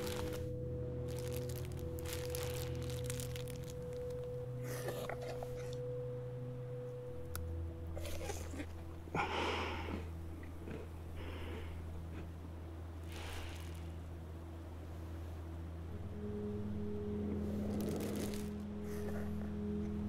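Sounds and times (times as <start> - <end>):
plastic bag crinkling: 0.0 - 5.8, 17.7 - 18.5
low droning film score: 0.0 - 20.0.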